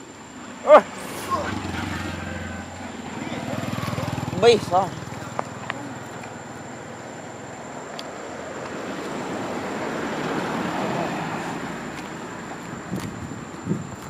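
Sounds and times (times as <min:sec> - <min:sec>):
vehicle driving past: 0:00.8 - 0:07.7, 0:08.4 - 0:12.4.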